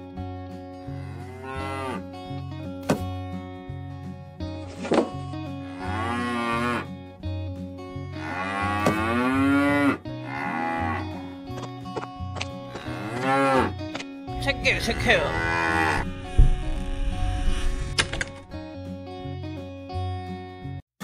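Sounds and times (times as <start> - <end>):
background music with bass: 0.0 - 20.8
cattle mooing: 0.9 - 2.1, 5.6 - 6.9, 8.1 - 11.4, 12.7 - 13.8, 14.6 - 17.8.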